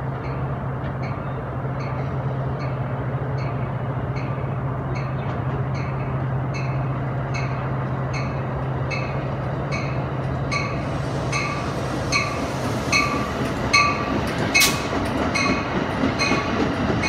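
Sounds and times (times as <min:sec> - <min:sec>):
train low rumble: 0:00.0 - 0:17.0
train bell ringing: 0:00.2 - 0:16.6.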